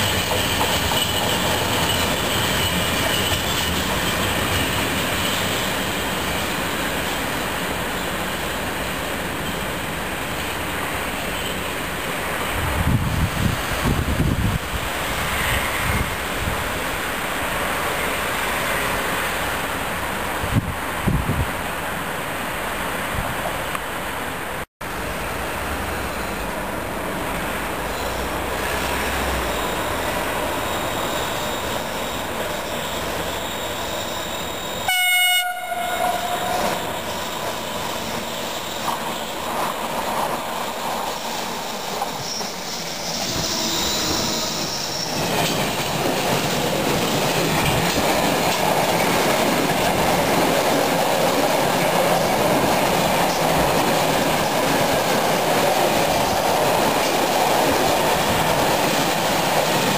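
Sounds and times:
wheel squeal: 0:00.0 - 0:07.4, 0:27.9 - 0:35.0, 0:36.3 - 0:39.7, 0:40.8 - 0:45.8
wheels clattering over rail joints: 0:00.0 - 0:11.8, 0:44.7 - 0:59.9
freight train rolling past: 0:00.0 - 0:59.9
train horn blast: 0:34.8 - 0:36.8, 0:43.2 - 0:44.8.

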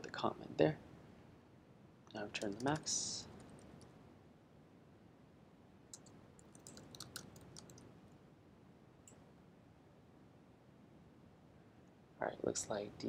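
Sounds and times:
typing on computer keyboard: 0:02.4 - 0:02.8, 0:05.9 - 0:07.8.

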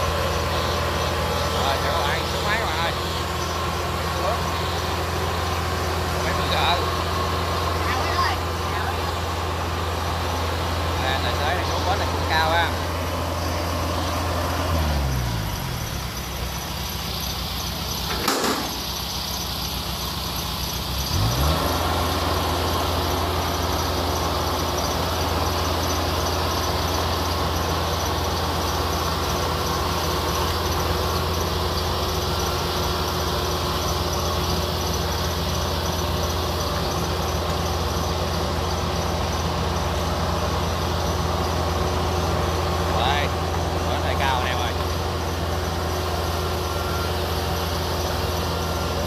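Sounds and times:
diesel engine running: 0:00.0 - 0:49.0
sharp knock: 0:18.1 - 0:18.8.

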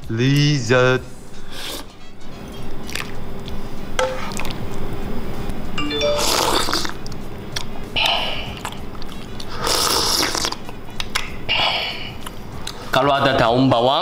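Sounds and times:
background music with chimes: 0:05.8 - 0:06.8
slurping soup from a spoon: 0:09.1 - 0:10.6.

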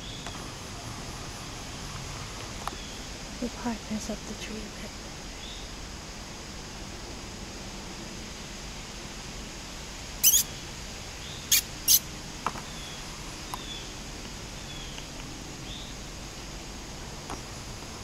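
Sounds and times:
faint falling chirps: 0:10.2 - 0:10.5
high-pitched squeaks: 0:10.2 - 0:10.5, 0:11.5 - 0:12.0.

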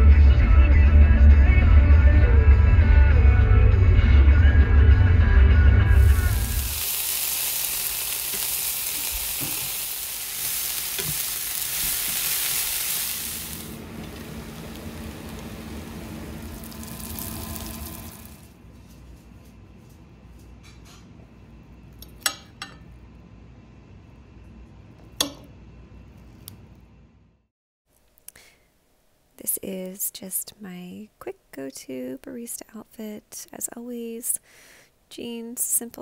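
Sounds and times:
greens sizzling in a frying pan: 0:05.9 - 0:18.5.

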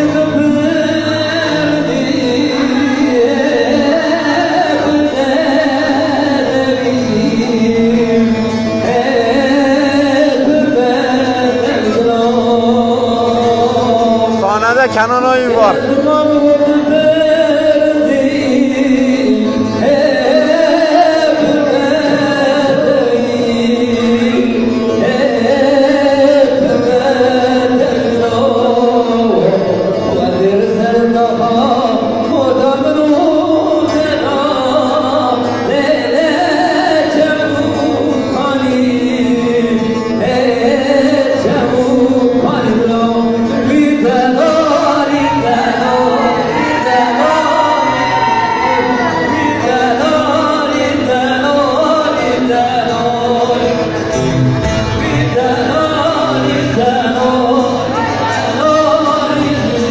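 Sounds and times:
instrumental accompaniment: 0:00.0 - 0:59.9
man singing into microphone: 0:00.0 - 0:59.9.

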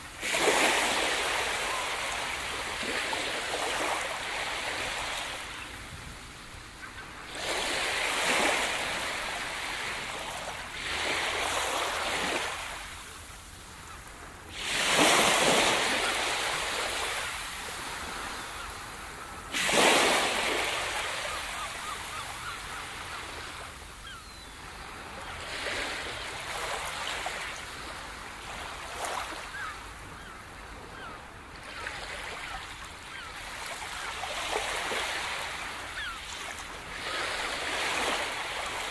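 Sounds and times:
ocean waves breaking: 0:00.0 - 0:38.9.

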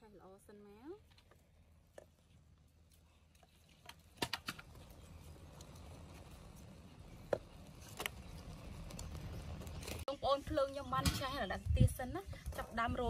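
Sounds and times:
firewood sticks clacking: 0:03.3 - 0:06.6.

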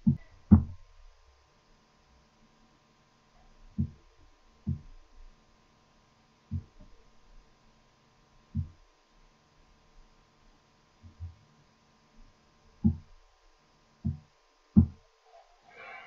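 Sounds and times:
dull low thumps: 0:00.0 - 0:00.9, 0:03.7 - 0:05.0, 0:06.5 - 0:06.9, 0:08.5 - 0:08.9, 0:12.8 - 0:13.2, 0:14.0 - 0:15.0
faint steady hum: 0:00.0 - 0:16.0.

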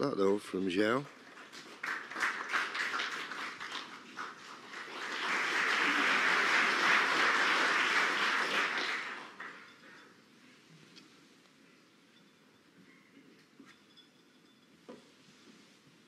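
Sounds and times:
audience applauding: 0:00.9 - 0:09.8.

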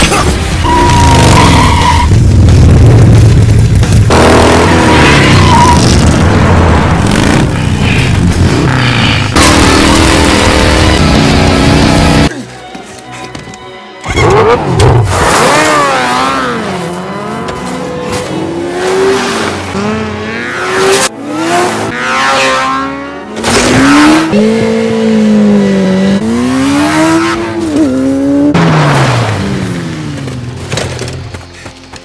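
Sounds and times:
motorcycle engine revving: 0:06.8 - 0:12.3, 0:14.2 - 0:31.3.

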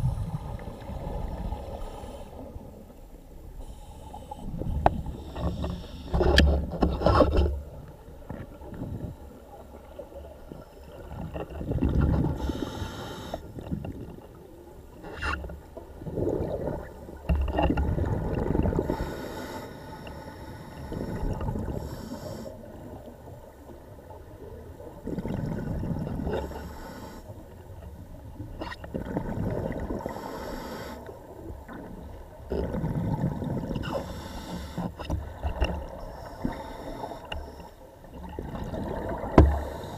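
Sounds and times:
regulator hissing inhalations: 0:12.4 - 0:13.5, 0:18.8 - 0:21.2, 0:21.8 - 0:22.6, 0:26.4 - 0:27.3, 0:30.1 - 0:31.1, 0:33.9 - 0:35.0, 0:36.2 - 0:37.7.

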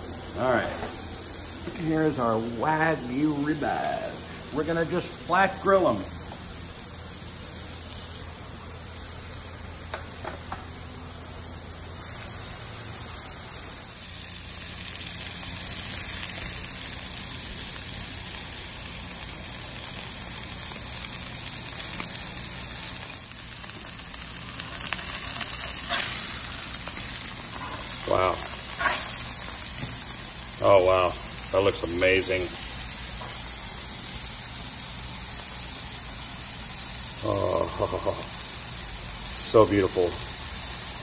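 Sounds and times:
meat sizzling on a griddle: 0:00.0 - 0:41.0.

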